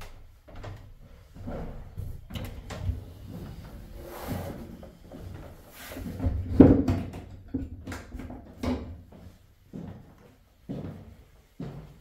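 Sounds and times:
footsteps on wooden stairs: 0:08.2 - 0:12.0.

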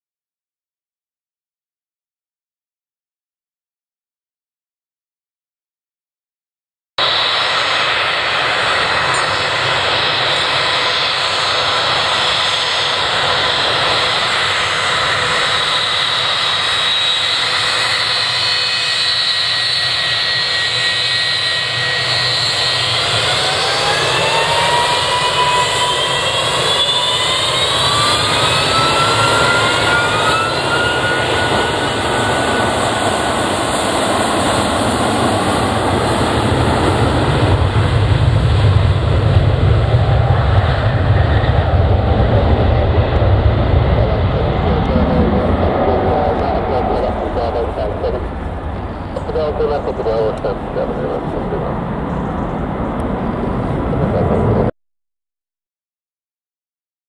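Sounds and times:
jet engines roaring and whining: 0:07.0 - 0:54.7.

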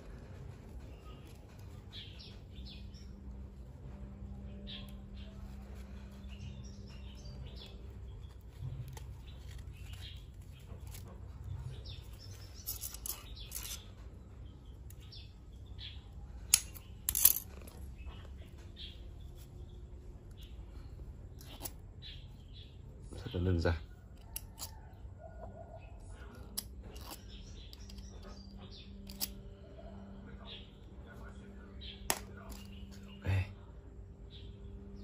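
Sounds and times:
faint birds chirping: 0:00.0 - 0:35.0
thread and feathers handling: 0:07.3 - 0:13.8.

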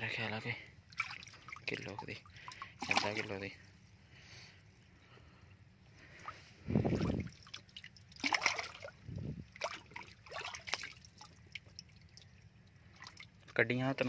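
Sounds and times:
water splashing in fish tank: 0:00.8 - 0:03.5, 0:06.0 - 0:13.7
dull low thumps: 0:09.0 - 0:09.6.

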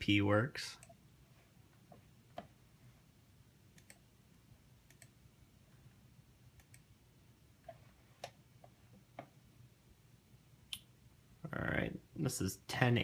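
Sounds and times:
computer mouse clicks: 0:03.7 - 0:04.1, 0:04.8 - 0:05.2, 0:06.6 - 0:06.9.

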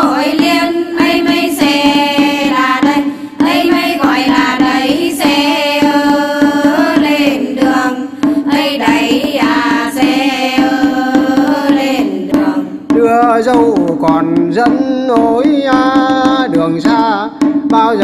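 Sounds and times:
women's group singing: 0:00.0 - 0:13.0
small drum beats: 0:00.0 - 0:18.0.

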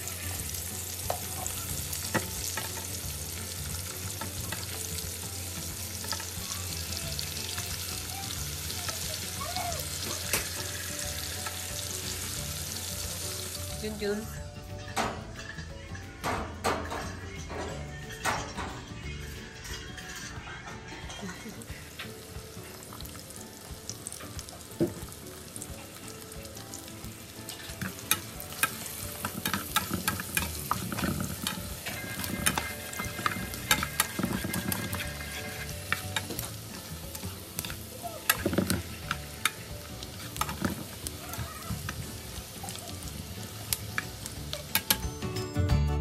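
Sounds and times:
food sizzling in a pan: 0:00.0 - 0:15.8, 0:19.0 - 0:45.4
utensil scraping a pan: 0:27.5 - 0:42.8.

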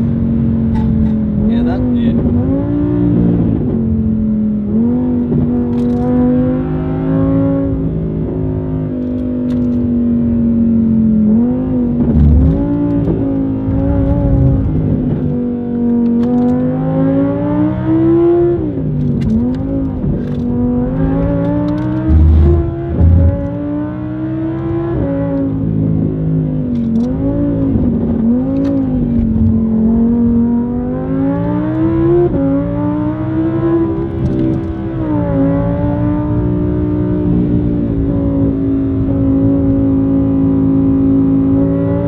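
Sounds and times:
car engine revving: 0:00.0 - 0:42.0
deep thumps: 0:22.0 - 0:23.8.

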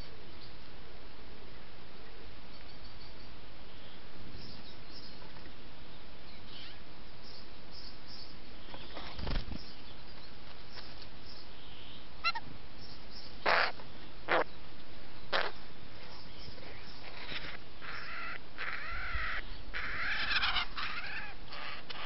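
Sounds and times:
jay harsh rasping calls: 0:13.4 - 0:14.5, 0:17.0 - 0:22.0.

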